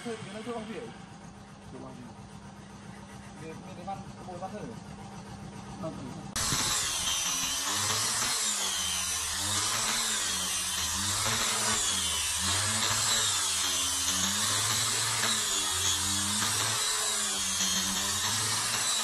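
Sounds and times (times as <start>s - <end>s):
angle grinder sanding wood: 6.4s - 19.0s.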